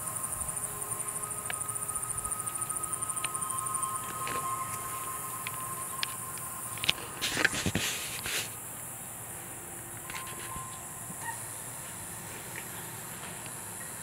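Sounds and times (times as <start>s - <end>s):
high insect drone: 0.0s - 14.0s
rustling scuffing noise: 4.1s - 8.6s.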